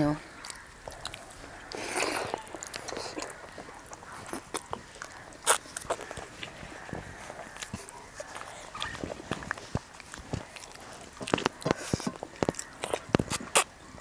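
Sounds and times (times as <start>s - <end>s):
wet chewing and lip smacking: 0.2s - 14.0s.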